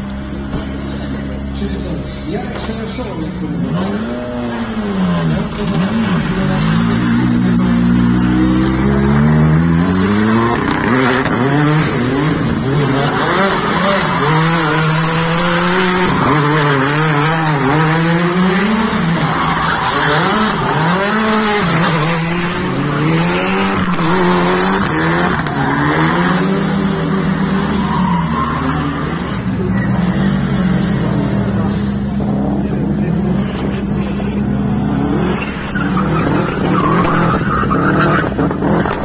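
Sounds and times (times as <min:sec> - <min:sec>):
rally car engine revving: 0:00.0 - 0:39.0
second car engine: 0:00.0 - 0:39.0
tyre squeal: 0:27.0 - 0:31.3, 0:32.6 - 0:39.0.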